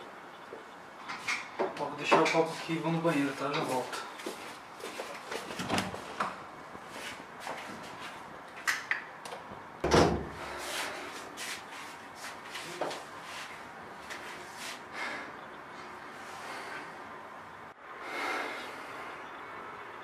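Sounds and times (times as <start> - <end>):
door shutting with a thud: 9.8 - 10.4.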